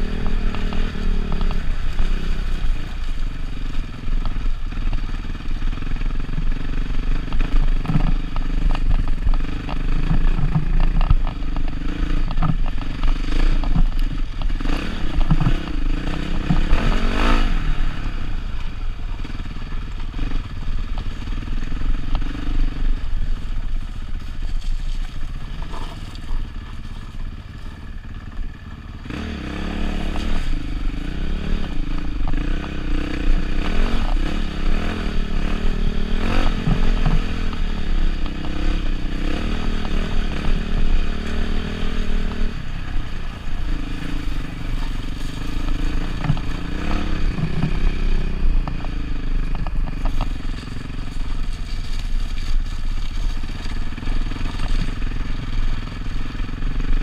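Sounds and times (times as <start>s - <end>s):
motorcycle engine at low speed: 0.0s - 57.0s
stones clattering under tyres: 6.0s - 17.5s, 33.7s - 56.1s.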